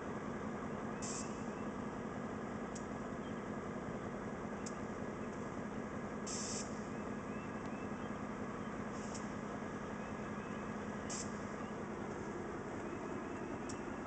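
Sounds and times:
diesel locomotives idling: 0.0s - 14.0s
short hisses: 6.3s - 6.8s.

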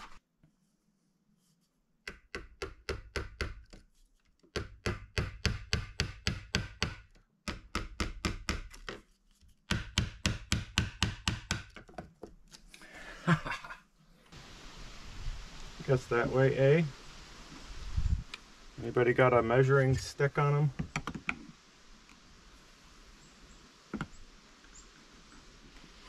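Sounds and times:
small hammer tapping a tack: 2.0s - 3.8s, 4.5s - 9.0s, 9.7s - 12.4s.

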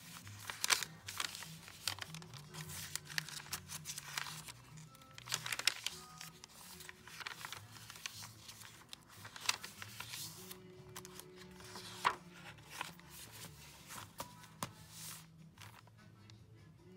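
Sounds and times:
paper pages rustling and flapping: 0.0s - 16.0s
faint background music: 0.0s - 16.9s.

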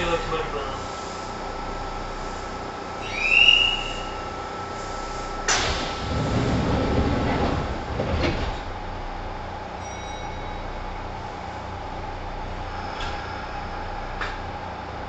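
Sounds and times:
train doors sliding: 4.8s - 9.4s, 12.7s - 14.5s.

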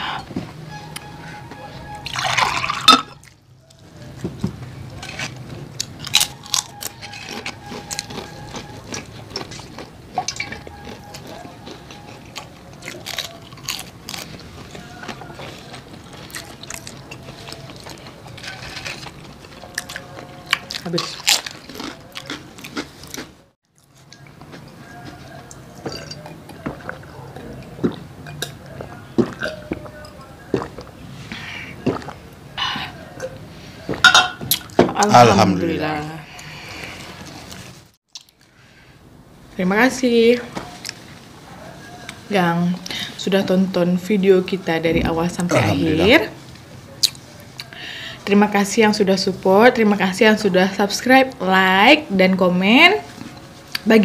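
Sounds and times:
crunching fried chicken: 4.8s - 31.0s
wet chewing clicks: 5.3s - 31.0s, 31.8s - 32.3s, 38.1s - 38.5s
people gulping water: 31.7s - 32.4s
breathy exhales: 36.2s - 37.2s.

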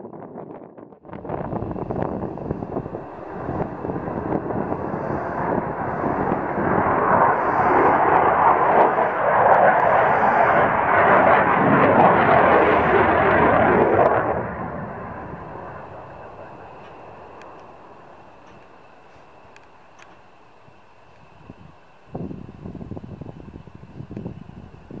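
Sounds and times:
fighter jet passing overhead: 1.1s - 20.0s.

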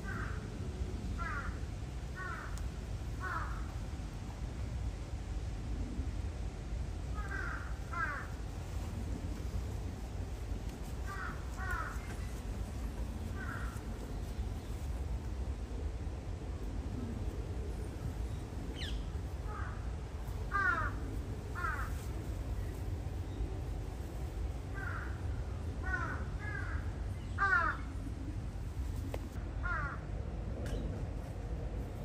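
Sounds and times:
crows cawing: 0.0s - 0.4s, 1.2s - 1.6s, 2.2s - 2.6s, 3.2s - 3.7s, 7.1s - 8.4s, 11.0s - 12.1s, 13.3s - 13.8s, 19.4s - 19.9s, 20.5s - 22.0s, 24.7s - 25.2s, 25.8s - 27.9s, 29.6s - 30.0s
steady low hum: 0.0s - 32.0s.

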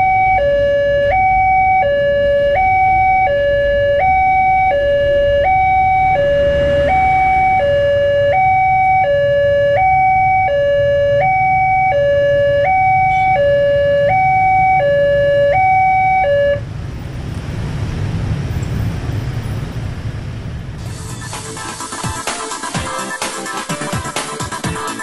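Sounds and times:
level crossing two-tone alarm: 0.0s - 16.6s
motorcycle engines rumbling: 0.0s - 21.2s.

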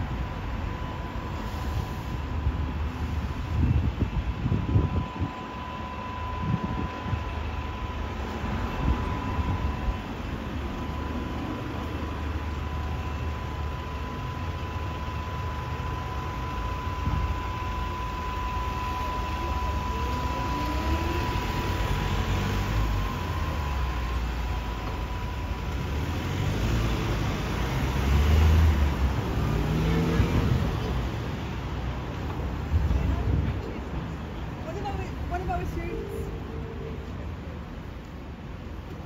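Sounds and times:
street traffic rumble: 0.0s - 39.0s
engine revving pulling away: 25.7s - 31.2s.

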